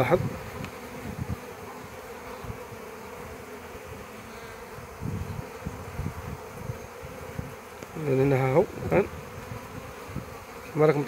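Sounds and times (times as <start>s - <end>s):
bees and wasps buzzing: 0.0s - 11.0s.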